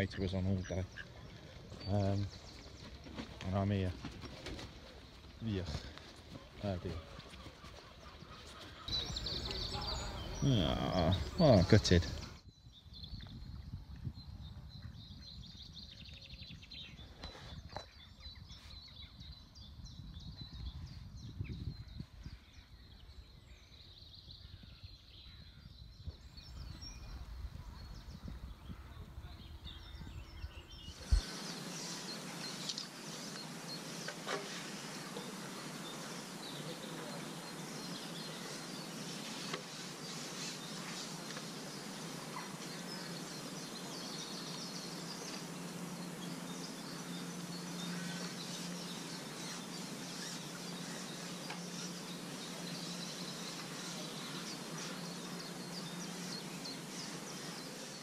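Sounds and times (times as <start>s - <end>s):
birds chirping and singing: 0.0s - 58.0s
steady background hiss: 26.3s - 58.0s.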